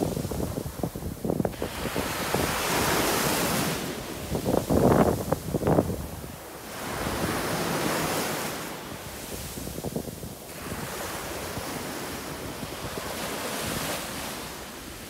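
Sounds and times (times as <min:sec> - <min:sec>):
small waves washing on sand: 0:00.0 - 0:15.0
wind buffeting microphone: 0:00.0 - 0:15.0.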